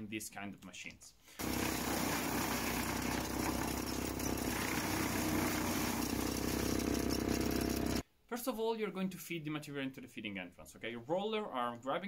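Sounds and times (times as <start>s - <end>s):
wood chipper drone: 1.4s - 8.0s
wood chips hissing from pipe: 1.4s - 8.0s.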